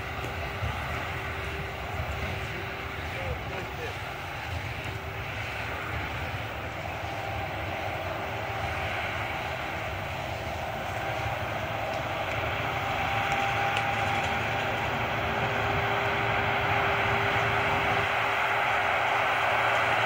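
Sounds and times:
baler faint whine: 0.0s - 20.0s
tractor diesel engine under load: 0.0s - 20.0s.

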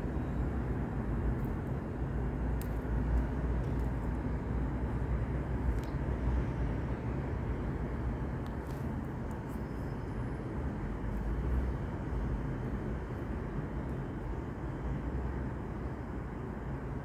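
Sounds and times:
low outdoor rumble: 0.0s - 17.0s
faint small clicks: 2.6s - 3.9s, 5.7s - 6.0s.

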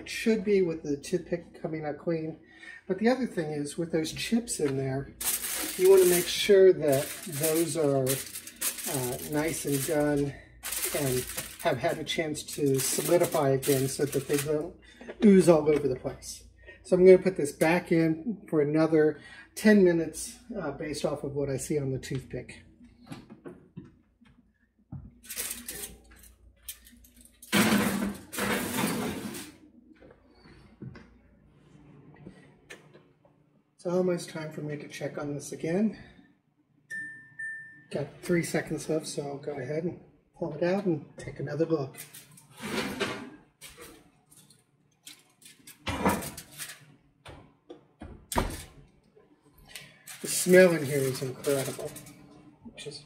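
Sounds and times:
loud rustling scrape: 5.2s - 14.6s, 27.5s - 29.6s, 42.5s - 43.9s.

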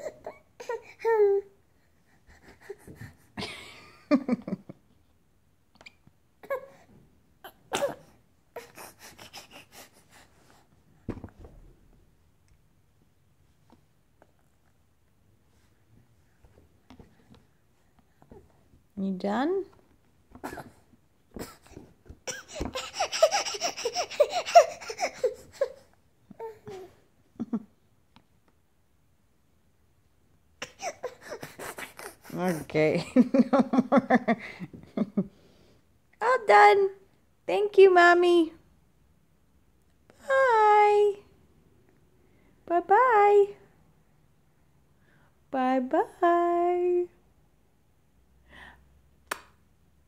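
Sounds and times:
baby grunting and squeaking: 7.4s - 9.9s, 21.4s - 25.8s.

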